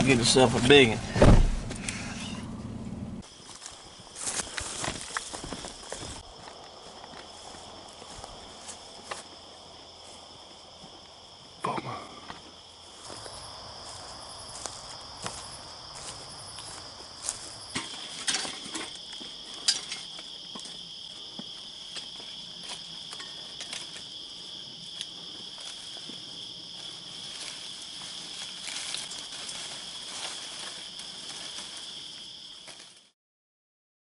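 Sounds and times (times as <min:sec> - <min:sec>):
night insects trilling: 0:03.2 - 0:33.1.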